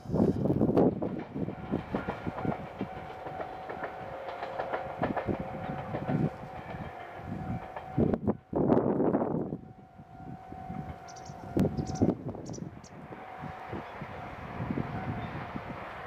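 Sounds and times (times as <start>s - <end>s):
electric train running past: 0.0s - 16.0s
train wheels clacking over rail joints: 0.8s - 8.2s.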